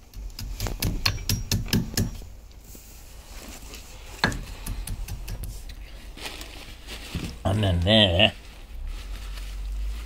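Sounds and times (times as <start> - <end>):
hammer tapping metal: 0.0 - 2.3, 4.2 - 5.6.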